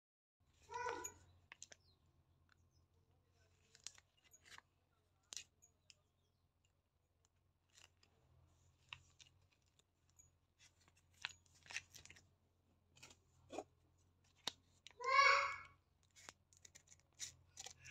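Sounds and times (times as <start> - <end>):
plastic mailer crackling: 10.6 - 12.3.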